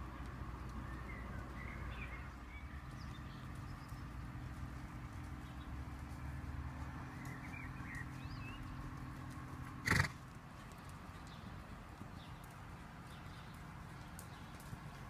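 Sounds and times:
horse hoofbeats on sand: 0:00.0 - 0:15.0
bird chirps: 0:07.1 - 0:08.8.

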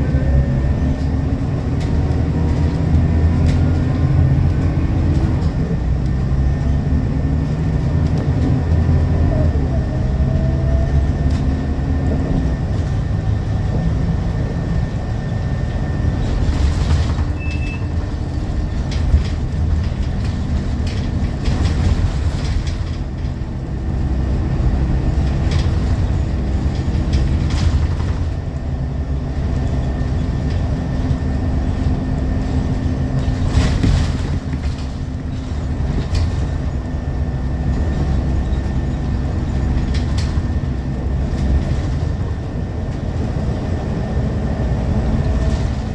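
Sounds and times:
bus body rattles: 0:00.0 - 0:45.9
bus engine rumbling: 0:00.0 - 0:45.9.

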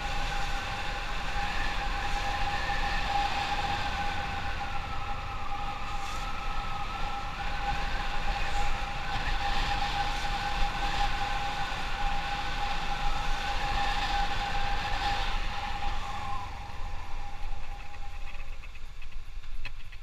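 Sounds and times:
wind rumble on microphone: 0:00.0 - 0:20.0.

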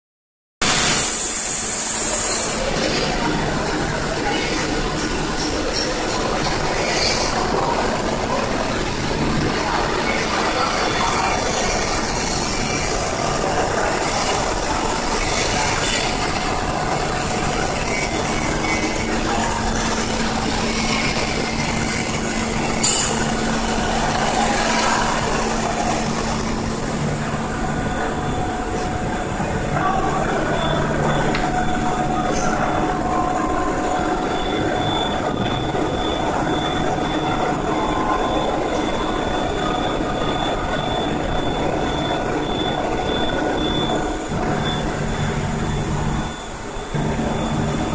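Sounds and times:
mechanical workshop hum: 0:00.6 - 0:47.9.

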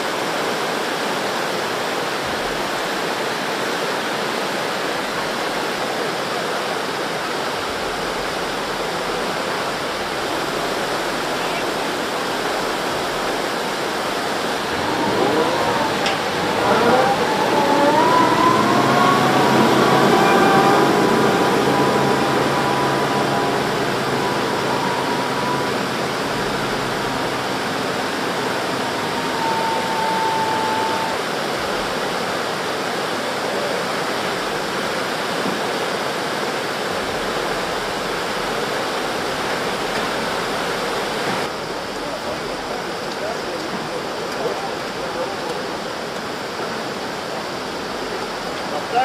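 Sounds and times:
floodwater rushing: 0:00.0 - 0:49.0
excavator engine whine: 0:06.9 - 0:48.7.

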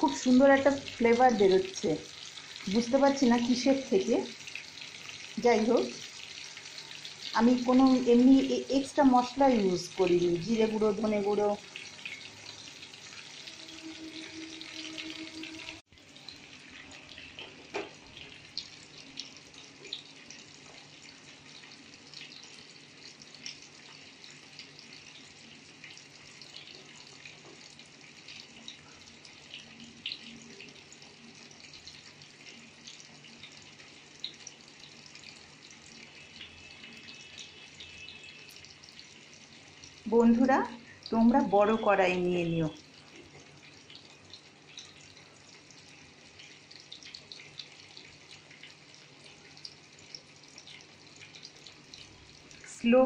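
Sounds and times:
fish sizzling in oil: 0:00.0 - 0:53.0.

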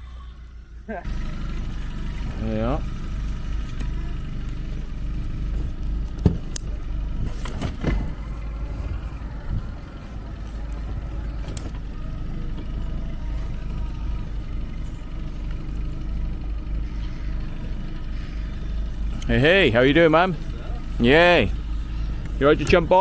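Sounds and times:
engine rumbling: 0:00.0 - 0:23.0
engine knocks: 0:01.1 - 0:23.0.

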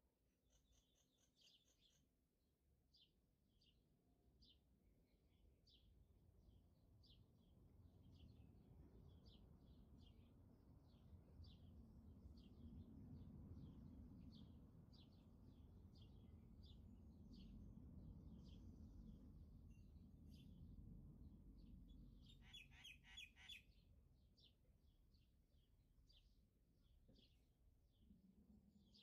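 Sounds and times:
small bird chirping: 0:00.5 - 0:02.1, 0:21.6 - 0:28.1
faint low rumble: 0:04.1 - 0:29.0.

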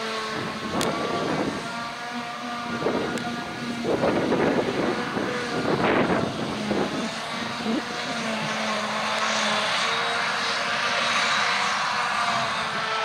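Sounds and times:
forage harvester chopping grass: 0:00.0 - 0:13.0
tractor engine: 0:00.0 - 0:13.0.

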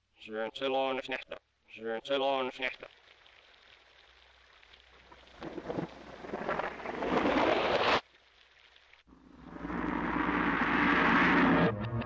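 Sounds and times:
rain hiss: 0:02.8 - 0:10.3
thunder rumble: 0:09.2 - 0:12.0.

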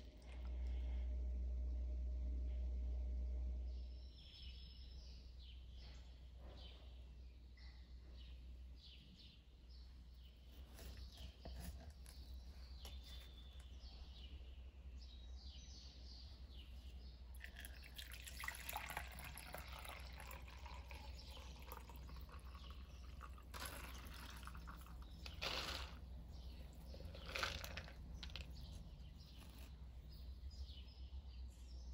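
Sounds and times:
faint birds chirping: 0:00.0 - 0:31.9
liquid trickling into a metal sieve: 0:17.3 - 0:26.0.

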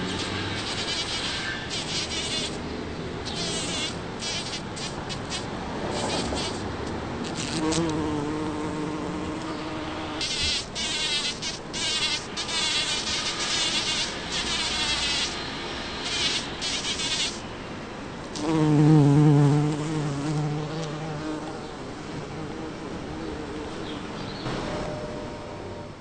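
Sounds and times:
bumblebee buzzing: 0:00.0 - 0:17.4, 0:18.3 - 0:25.9.

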